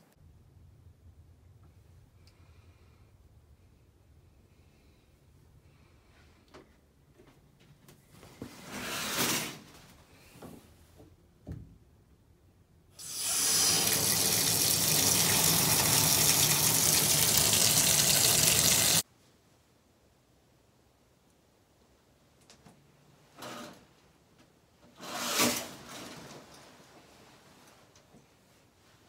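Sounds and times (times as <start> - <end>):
tap water running into sink: 13.0 - 19.0.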